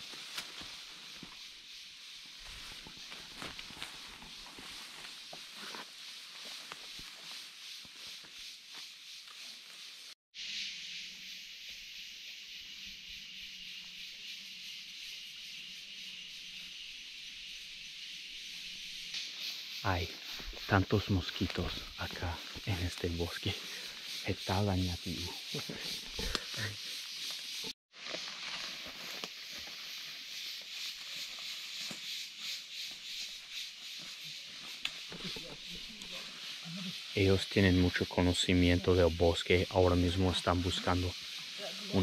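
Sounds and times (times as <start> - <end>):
footsteps through undergrowth: 0.0 - 10.2, 19.9 - 36.5
forest ambience hiss by creek: 0.0 - 42.0
insects buzzing: 0.0 - 42.0.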